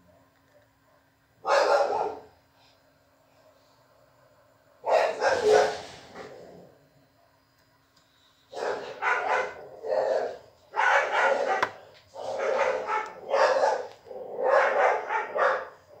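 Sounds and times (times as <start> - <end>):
dog barking: 0.0 - 2.4, 4.8 - 6.3, 8.5 - 16.0.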